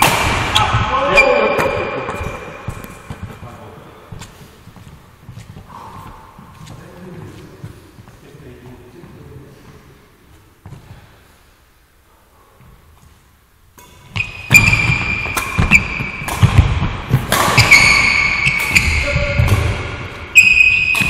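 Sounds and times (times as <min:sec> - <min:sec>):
racket hitting shuttlecock: 0:00.0 - 0:03.3, 0:13.8 - 0:21.0
shoe squeaks: 0:00.6 - 0:01.8, 0:14.2 - 0:16.3, 0:17.4 - 0:19.4, 0:20.3 - 0:21.0
thudding footsteps: 0:01.6 - 0:11.2.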